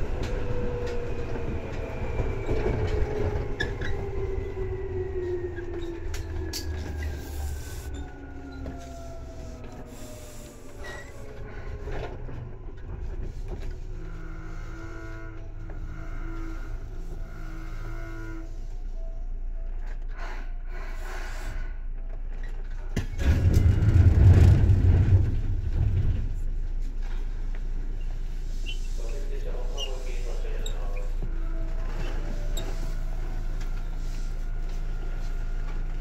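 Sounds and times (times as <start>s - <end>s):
train rolling noise: 0.0s - 36.0s
low rumble: 23.1s - 28.1s.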